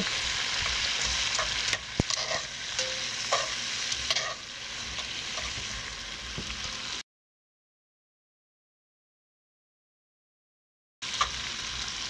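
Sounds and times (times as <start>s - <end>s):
vegetables sizzling in hot oil: 0.0s - 7.0s, 11.0s - 12.0s
utensil clicking and scraping pot: 0.9s - 5.6s.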